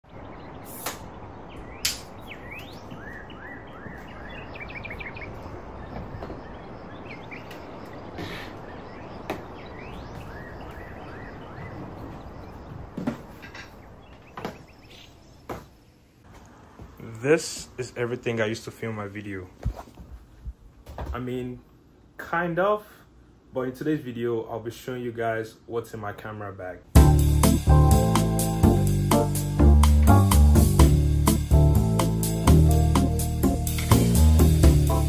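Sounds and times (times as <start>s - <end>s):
small birds chirping: 0.0s - 16.2s
background hiss: 0.2s - 2.7s, 11.8s - 35.0s.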